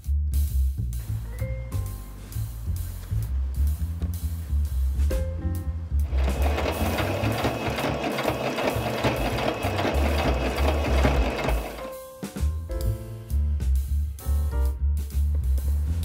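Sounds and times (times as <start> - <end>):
background music with low beat: 0.0 - 16.0
sewing machine stitching: 6.1 - 12.0.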